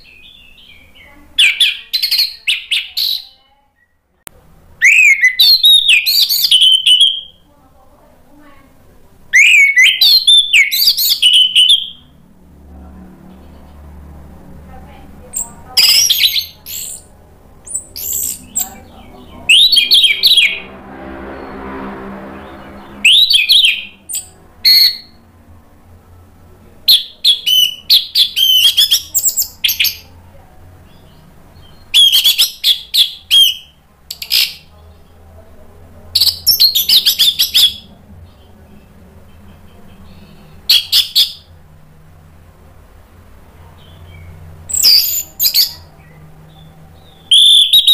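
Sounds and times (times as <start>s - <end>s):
thrush singing: 8.8s - 41.7s.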